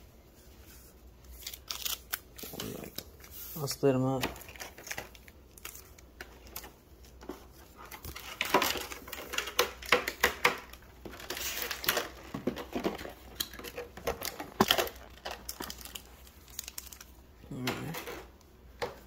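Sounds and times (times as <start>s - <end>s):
foil packs crinkling: 1.3s - 17.2s.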